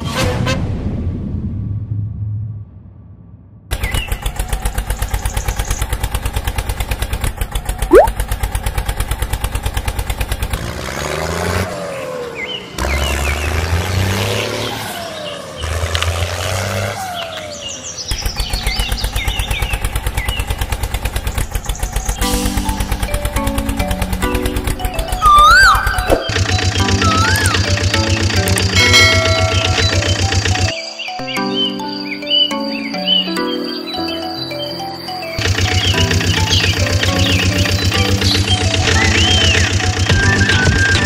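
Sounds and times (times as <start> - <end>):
tractor engine chugging: 3.7 - 10.8, 17.9 - 30.8, 35.3 - 41.0
engine clatter with sliding pitches: 3.7 - 30.8, 35.2 - 41.0
sharp rising whistle: 27.0 - 27.6.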